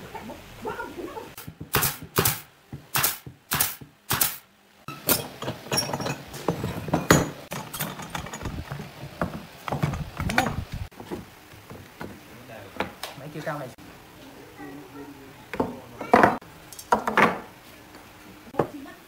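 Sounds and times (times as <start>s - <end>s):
short sharp bursts: 1.4s - 4.5s
wooden parts knocking and clicking: 6.9s - 12.2s.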